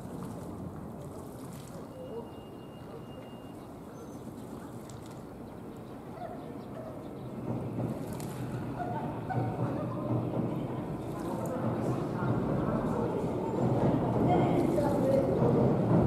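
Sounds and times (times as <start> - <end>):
pigeons splashing in water: 0.0 - 6.1, 7.8 - 10.1, 10.7 - 13.2, 14.2 - 15.5.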